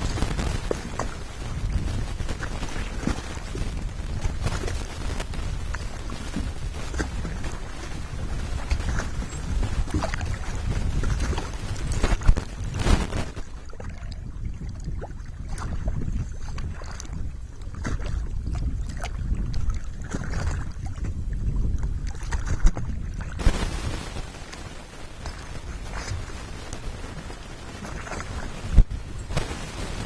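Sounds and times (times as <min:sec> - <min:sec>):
low rumble: 0:00.0 - 0:15.6
water splashes: 0:00.0 - 0:30.0
rushing hiss of water: 0:23.4 - 0:27.8.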